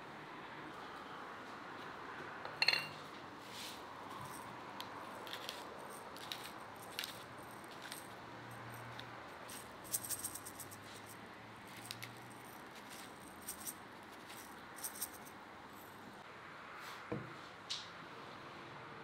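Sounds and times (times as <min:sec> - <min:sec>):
spice mill grinding: 0:04.2 - 0:15.3.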